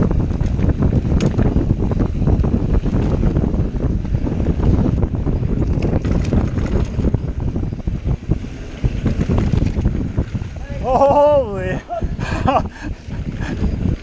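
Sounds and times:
bike clicks and rattles: 0.0 - 11.1
tyres rumbling on dirt: 0.0 - 14.0
wind buffeting microphone: 0.0 - 14.0.

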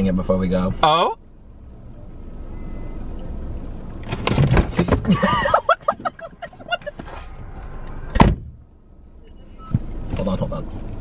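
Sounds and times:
man laughing: 5.0 - 7.1
loud thump: 8.1 - 8.6.

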